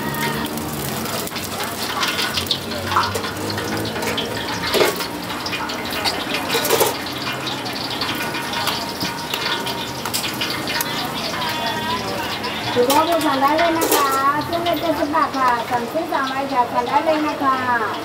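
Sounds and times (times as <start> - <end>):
oil sizzling and crackling: 0.0 - 18.0
metal tongs clinking: 0.2 - 15.1.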